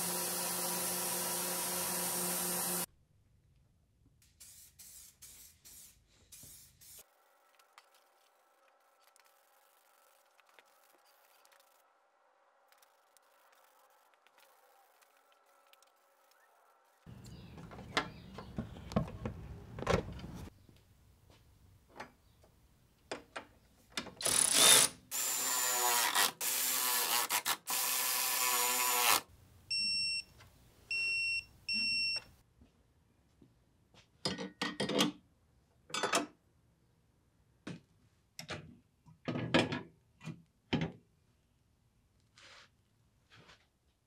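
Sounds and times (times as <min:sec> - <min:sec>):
power tool bursts: 0:00.0 - 0:02.9
torque wrench beeps: 0:29.7 - 0:30.3, 0:30.9 - 0:32.3.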